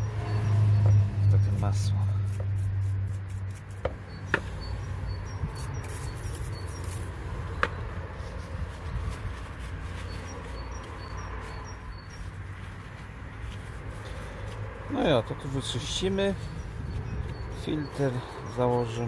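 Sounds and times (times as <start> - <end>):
small bird chirping: 3.9 - 14.4, 15.0 - 19.0.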